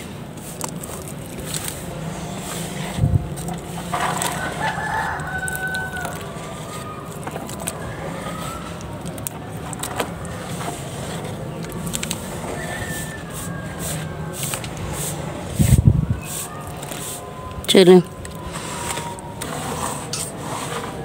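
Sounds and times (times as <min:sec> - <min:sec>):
hand kneading wet mud: 0:00.0 - 0:21.0
rooster crowing: 0:03.9 - 0:07.1, 0:12.4 - 0:14.5.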